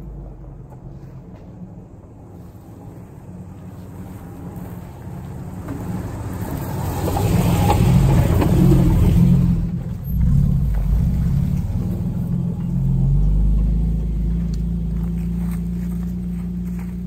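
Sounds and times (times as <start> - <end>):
vehicle engine driving past: 3.6 - 17.0.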